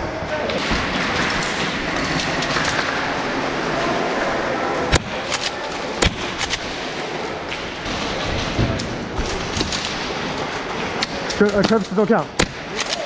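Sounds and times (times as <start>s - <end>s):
indoor arena background noise: 0.0s - 13.0s
faint cracks: 0.4s - 13.0s
airsoft gun shots: 12.4s - 12.8s.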